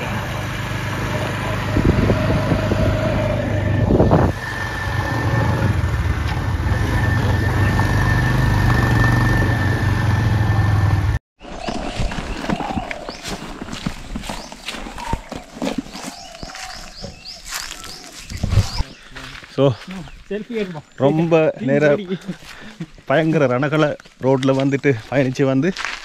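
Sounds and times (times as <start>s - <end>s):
vehicle engine humming with whine: 0.0s - 11.2s.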